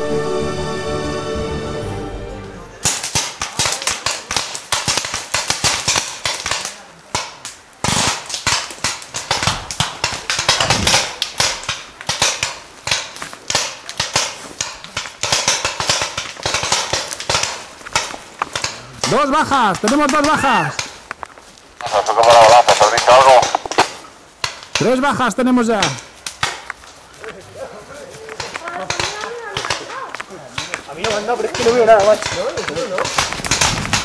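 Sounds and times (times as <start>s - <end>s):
music: 0.0s - 2.8s
airsoft guns firing: 2.8s - 21.0s, 21.8s - 26.7s, 28.4s - 34.0s.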